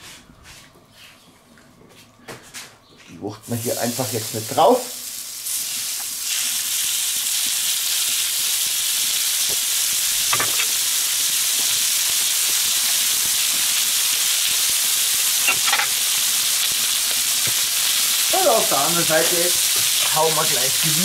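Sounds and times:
chicken sizzling on a hot plate: 3.5s - 21.0s.

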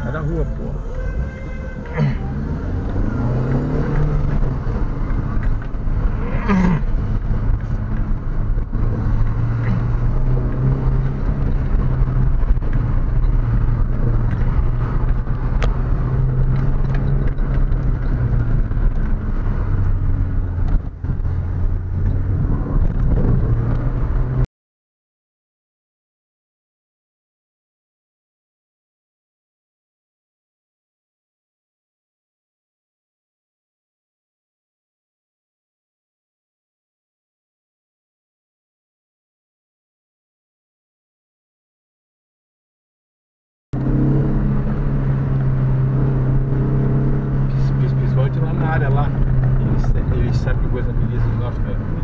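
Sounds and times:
car engine pulling uphill: 0.0s - 24.5s, 43.8s - 52.0s.

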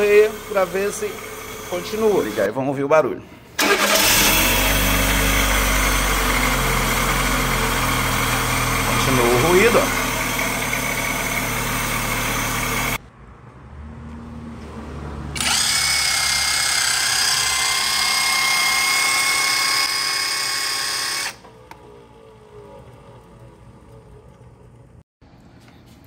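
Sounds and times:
car engine running: 0.0s - 2.4s, 3.6s - 13.0s
alternator whine: 3.6s - 13.0s.

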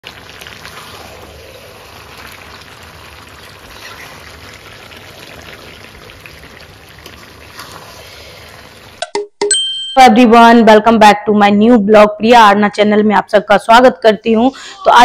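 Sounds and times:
water running and splashing: 0.0s - 9.0s.

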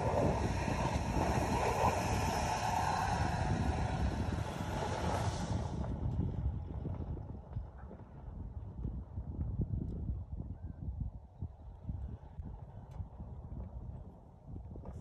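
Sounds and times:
car wheels spinning in snow: 0.0s - 7.1s.

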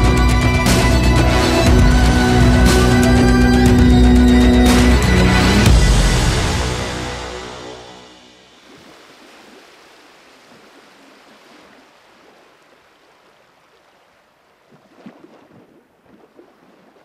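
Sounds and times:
music: 0.0s - 8.6s.

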